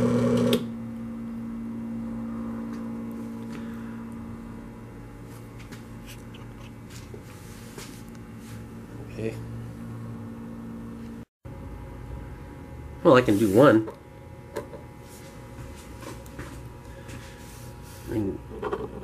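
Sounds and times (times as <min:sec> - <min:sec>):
bottle filler pump running: 0:00.0 - 0:01.2, 0:01.8 - 0:11.3
steady low hum: 0:00.7 - 0:19.0.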